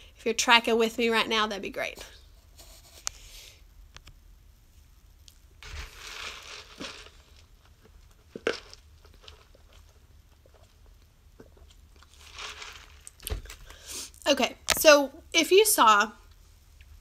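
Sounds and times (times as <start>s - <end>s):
cup rustling: 5.3s - 14.9s.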